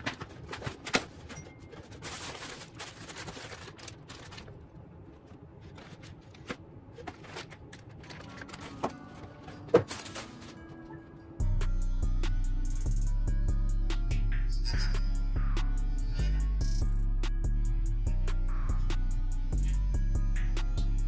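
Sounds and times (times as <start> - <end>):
cardboard and plastic bags crinkling: 0.0 - 10.9.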